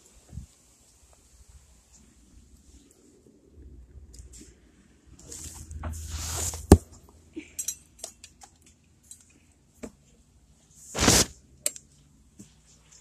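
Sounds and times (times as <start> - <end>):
light clicks and clinks: 7.4 - 9.6.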